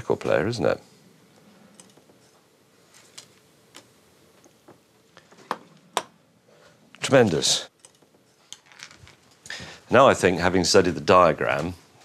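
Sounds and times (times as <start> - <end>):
small parts clicking and tapping: 1.7 - 2.4, 7.8 - 9.5.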